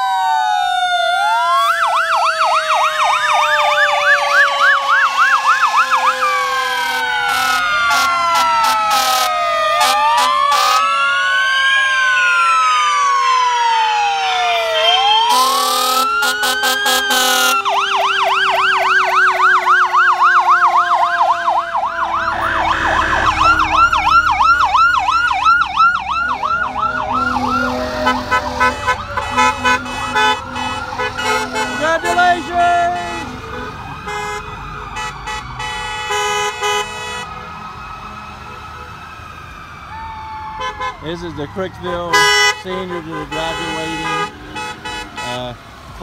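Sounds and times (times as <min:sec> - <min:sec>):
falling siren tone: 0:00.0 - 0:46.0
sirens yelping and wailing: 0:00.0 - 0:46.0
horn blasts: 0:05.0 - 0:10.8, 0:15.3 - 0:17.8, 0:21.8 - 0:37.4, 0:40.6 - 0:41.3, 0:42.0 - 0:45.5
heavy engine rumble: 0:21.0 - 0:36.1.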